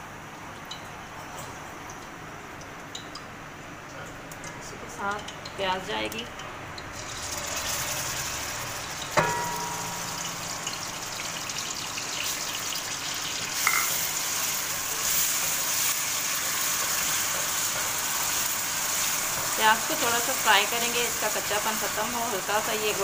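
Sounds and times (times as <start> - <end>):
onion sizzling in hot oil: 5.2 - 23.0.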